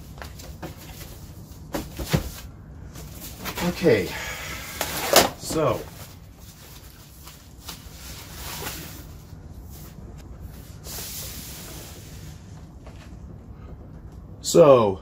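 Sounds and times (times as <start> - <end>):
foam packing sheet rustling: 4.8 - 10.0.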